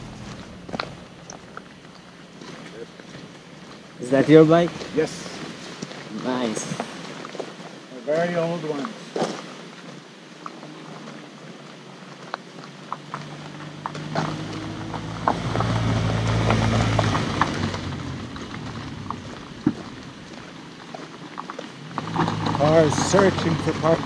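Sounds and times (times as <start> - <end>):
car driving past: 0.0 - 2.6, 13.1 - 20.4
footsteps on gravel: 0.0 - 24.0.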